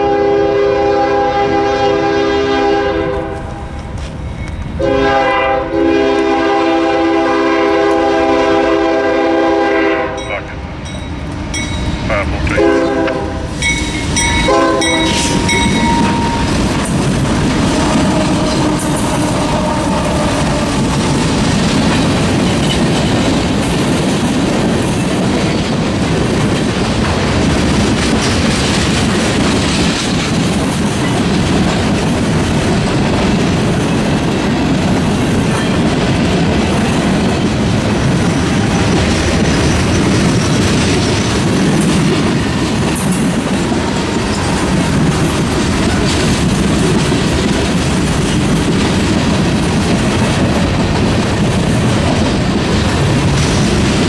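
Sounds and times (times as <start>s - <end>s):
locomotive air horn: 0.0s - 3.6s, 4.8s - 10.2s, 12.4s - 13.5s, 14.4s - 16.5s, 17.7s - 20.7s
railcars rumbling and clacking: 0.0s - 54.0s.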